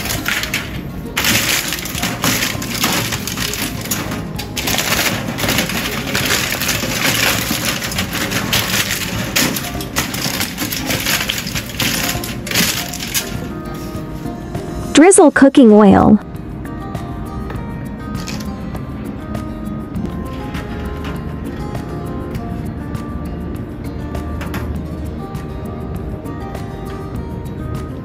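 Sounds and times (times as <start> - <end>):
aluminium foil crinkling: 0.0 - 14.3, 18.2 - 18.5.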